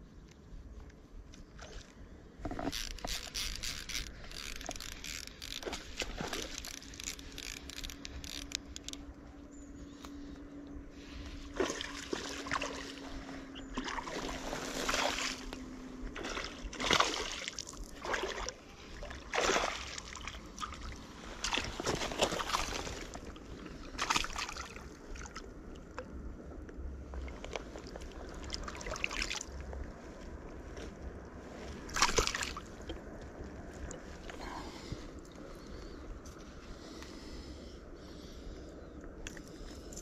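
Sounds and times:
faint steady hum: 0.0 - 40.0
fish splashing at water surface: 31.9 - 32.6.

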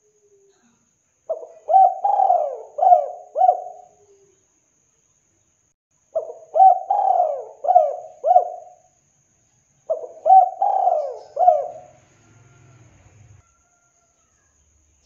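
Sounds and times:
dove cooing: 1.3 - 4.3, 6.2 - 8.9, 9.9 - 12.6.

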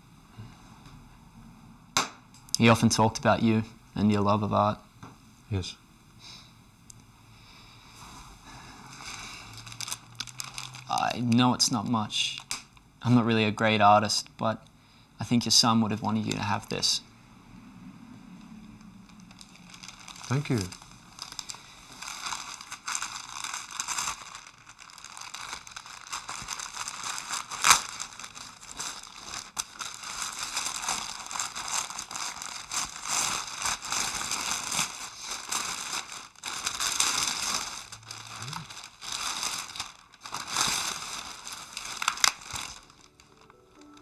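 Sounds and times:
paper rustling and crinkling: 8.8 - 12.5, 19.1 - 44.0
sharp paper crackle: 8.9 - 12.8, 18.8 - 44.0.

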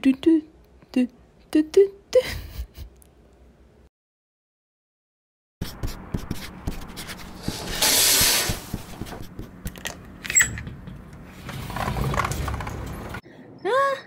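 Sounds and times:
rushing rub: 5.6 - 9.6
short high squeak: 10.3 - 10.6.

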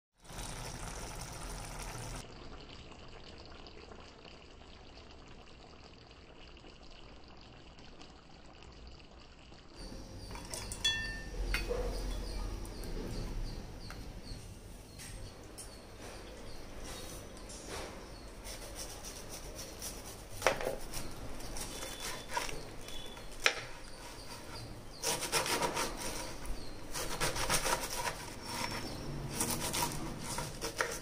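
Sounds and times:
curry bubbling in a pan: 0.2 - 10.4, 17.3 - 31.0.

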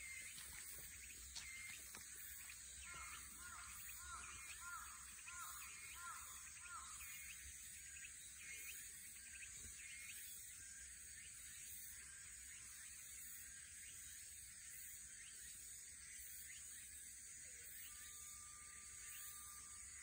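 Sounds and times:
faint outdoor background: 0.0 - 20.0.

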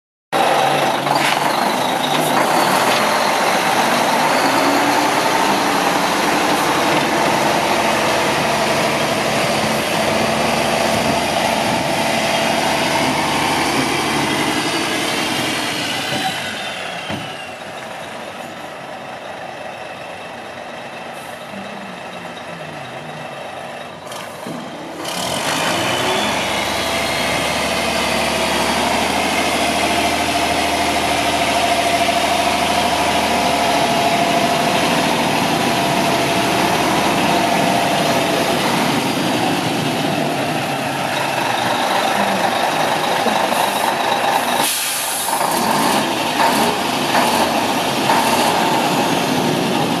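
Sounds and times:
diesel truck engine running: 0.4 - 50.0
air hiss: 44.6 - 45.3.

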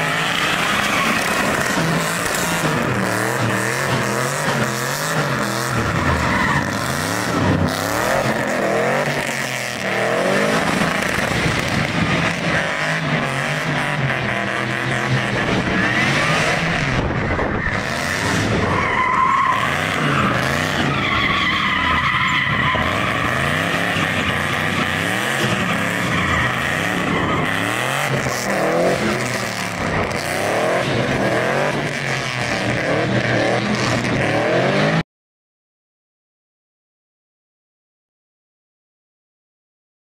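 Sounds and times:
tyres squealing: 0.0 - 2.8, 17.6 - 30.0
car engine revving: 0.0 - 35.0.

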